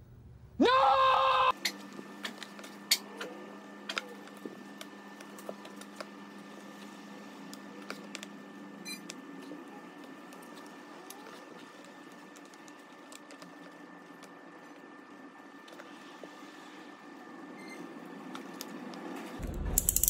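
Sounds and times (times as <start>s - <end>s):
person shouting: 0.6s - 1.5s
stylus and tablet clicks and taps: 19.5s - 20.0s.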